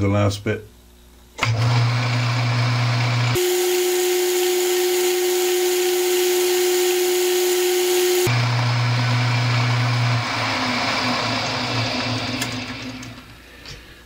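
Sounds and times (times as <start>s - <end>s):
lathe motor hum: 1.4s - 13.4s
high-pitched whine: 3.4s - 8.4s.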